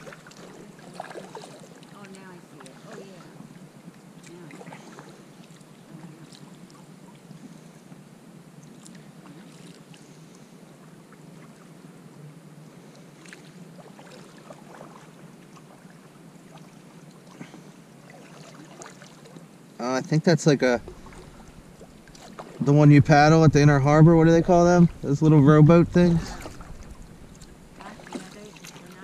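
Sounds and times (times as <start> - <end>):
small water splashes and drips: 0.0 - 3.3, 3.9 - 7.7, 8.6 - 11.7, 12.8 - 19.6, 20.8 - 22.8, 26.1 - 29.0
steady soft hiss: 19.2 - 29.0.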